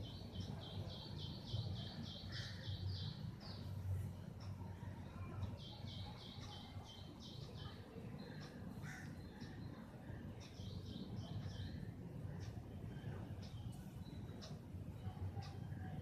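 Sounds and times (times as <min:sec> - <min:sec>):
birds calling: 0:00.0 - 0:03.8, 0:05.6 - 0:11.9
low steady hum: 0:00.0 - 0:16.0.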